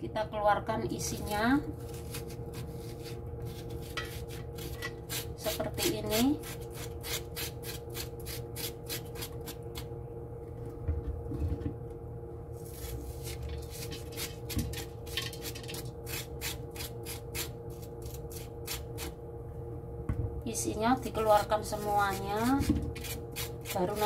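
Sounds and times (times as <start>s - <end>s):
spoon scraping melon: 1.2s - 9.6s, 21.4s - 24.0s.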